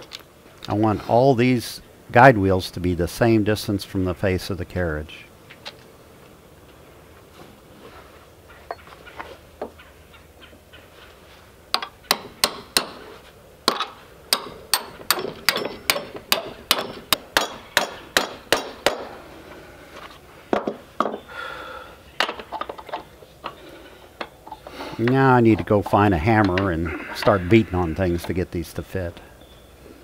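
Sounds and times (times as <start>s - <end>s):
hammer striking steel: 11.8s - 13.0s, 13.7s - 19.2s.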